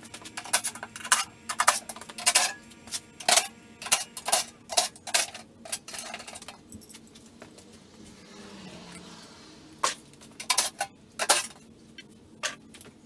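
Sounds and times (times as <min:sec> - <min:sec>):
metallic clinks and clatters: 0:04.3 - 0:08.2.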